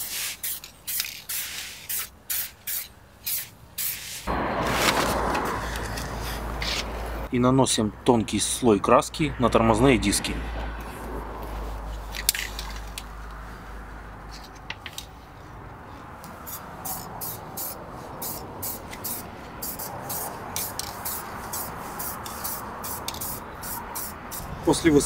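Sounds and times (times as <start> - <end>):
aerosol spray can hissing: 0.0 - 4.3, 16.5 - 24.4.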